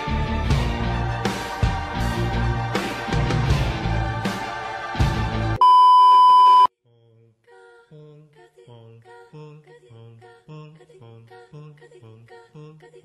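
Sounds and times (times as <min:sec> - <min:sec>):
background music: 0:00.0 - 0:05.6
electronic beep tone: 0:05.6 - 0:06.7.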